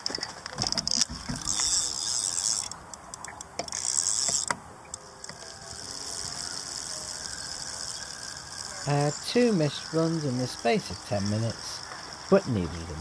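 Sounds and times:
fishing reel ticking: 0:00.1 - 0:13.0.

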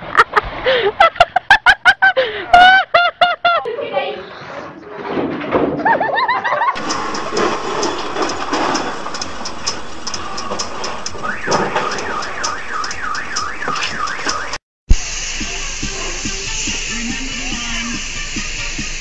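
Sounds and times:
regular ticking: 0:06.8 - 0:14.6
warbling electronic alarm: 0:11.1 - 0:14.6.

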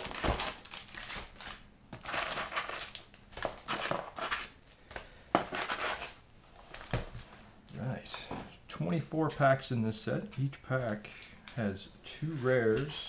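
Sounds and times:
foil packs crinkling: 0:00.0 - 0:06.9.

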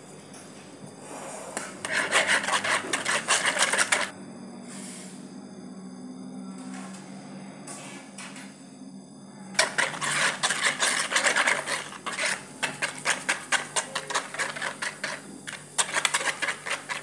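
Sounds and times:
whisk beating liquid in bowl: 0:01.8 - 0:04.1, 0:09.6 - 0:17.0.

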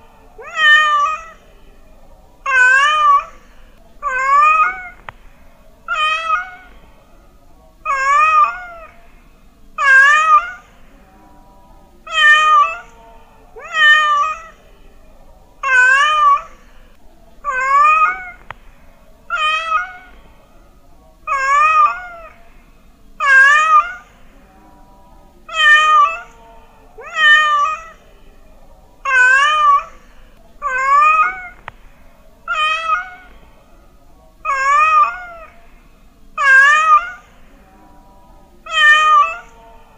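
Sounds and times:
cat meowing: 0:00.4 - 0:01.4, 0:02.5 - 0:03.4, 0:04.0 - 0:05.1, 0:05.9 - 0:06.7, 0:07.9 - 0:09.0, 0:09.8 - 0:10.7, 0:12.1 - 0:12.9, 0:13.6 - 0:14.6, 0:15.6 - 0:16.5, 0:17.4 - 0:18.5, 0:19.3 - 0:20.2, 0:21.3 - 0:22.4, 0:23.2 - 0:24.1, 0:25.5 - 0:26.4, 0:27.0 - 0:28.0, 0:29.1 - 0:29.9, 0:30.6 - 0:31.7, 0:32.5 - 0:33.3, 0:34.4 - 0:35.5, 0:36.4 - 0:37.3, 0:38.6 - 0:39.5.

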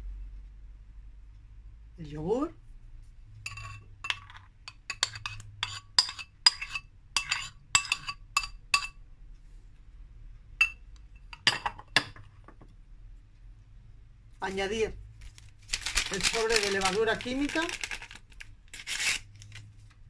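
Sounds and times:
spoon clinking on glass bowl: 0:03.5 - 0:09.0, 0:10.6 - 0:12.2.

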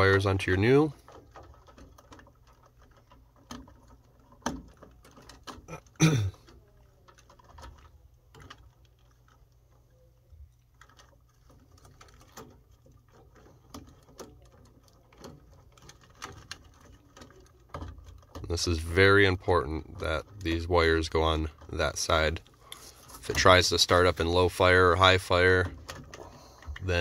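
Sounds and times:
rustling of wires: 0:00.0 - 0:27.0.

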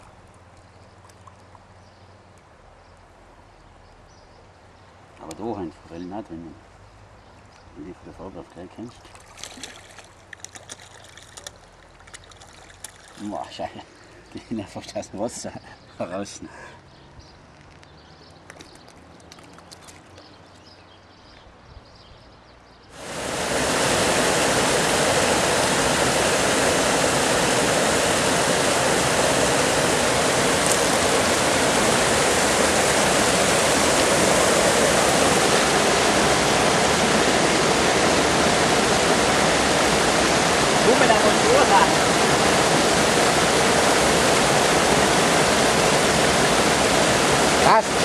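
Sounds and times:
river water rushing over a weir: 0:22.9 - 0:48.0.

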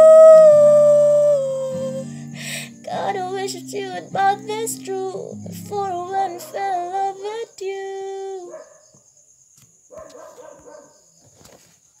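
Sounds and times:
woman singing pop ballad: 0:02.7 - 0:08.5.

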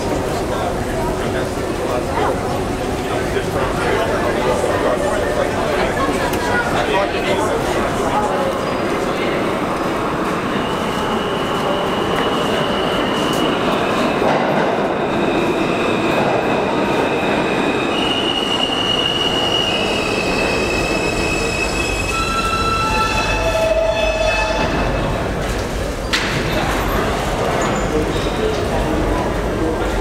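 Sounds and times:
train wheels rumbling on track: 0:00.0 - 0:30.0
high wheel squeal: 0:17.9 - 0:25.1.

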